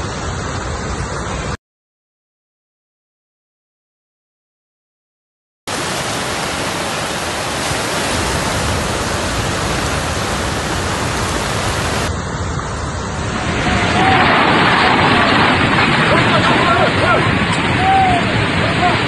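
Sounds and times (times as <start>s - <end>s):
floodwater rushing: 5.7s - 19.0s.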